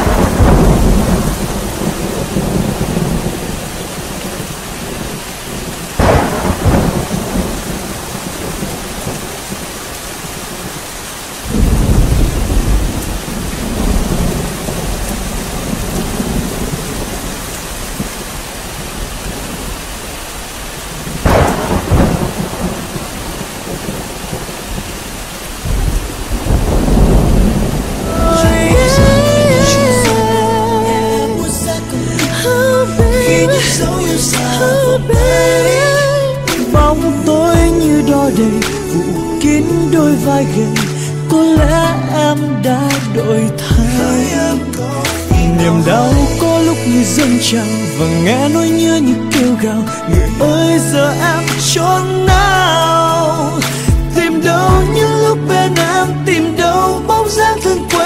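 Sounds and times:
thunder rolling: 0.0s - 10.8s, 11.4s - 20.0s, 20.9s - 40.9s
steady rain: 0.0s - 58.0s.

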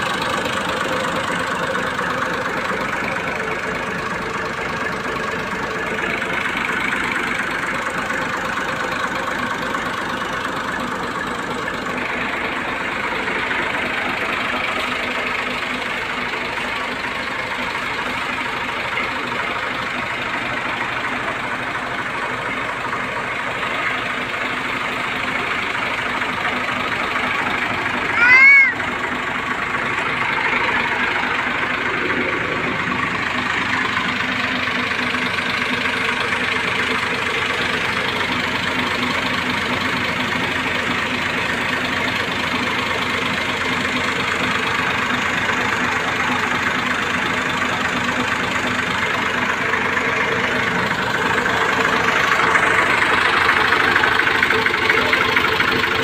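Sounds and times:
tractor diesel engine idling: 0.0s - 56.0s.

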